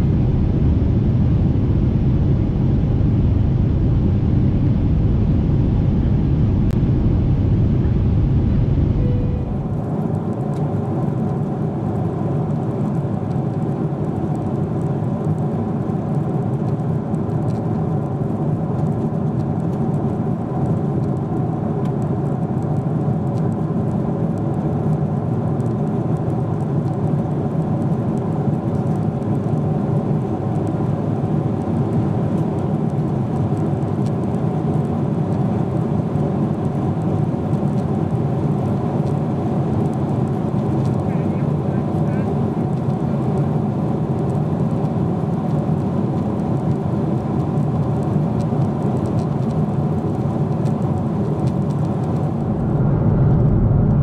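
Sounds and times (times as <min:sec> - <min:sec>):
rush of air in cabin: 0:00.0 - 0:12.3, 0:40.6 - 0:42.4, 0:51.1 - 0:54.0
faint steady hum: 0:00.0 - 0:12.4
jet engine drone: 0:00.0 - 0:22.3, 0:23.8 - 0:54.0.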